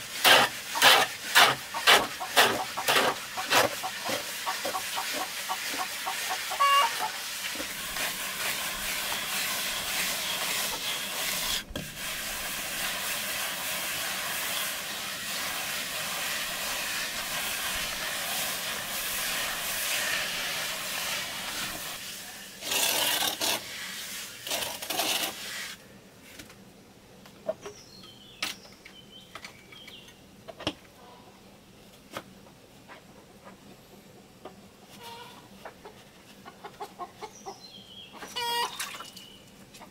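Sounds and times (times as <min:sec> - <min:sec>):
float scraping over cement: 0:07.4 - 0:25.8.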